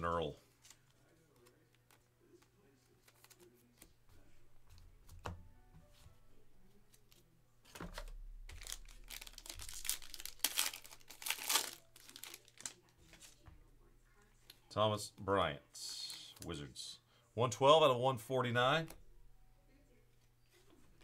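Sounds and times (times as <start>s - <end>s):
foil wrapper crinkling and tearing: 8.5s - 12.9s.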